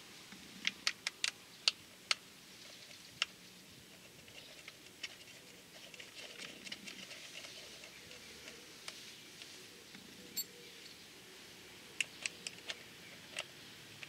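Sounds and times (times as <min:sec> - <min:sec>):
sharp small clicks: 0:00.3 - 0:02.2, 0:12.0 - 0:14.0
faint clicking and rustling: 0:00.3 - 0:11.0, 0:11.9 - 0:14.0.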